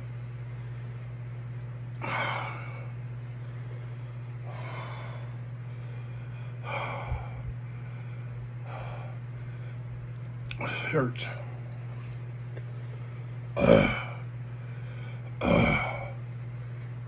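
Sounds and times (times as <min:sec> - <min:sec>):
man gasping breaths: 0:01.9 - 0:03.0, 0:03.6 - 0:09.9.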